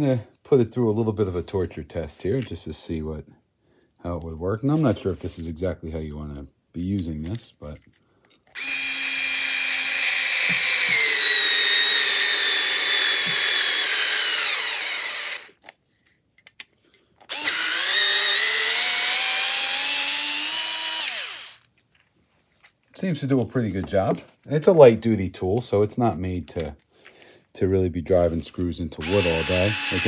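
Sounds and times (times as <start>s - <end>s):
cordless screwdriver motor whine: 8.6s - 15.5s, 17.3s - 21.6s, 29.0s - 30.0s.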